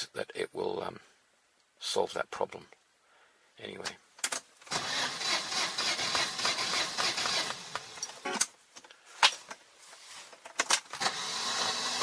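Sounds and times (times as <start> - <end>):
starter motor cranking: 4.7 - 8.1, 10.9 - 12.0.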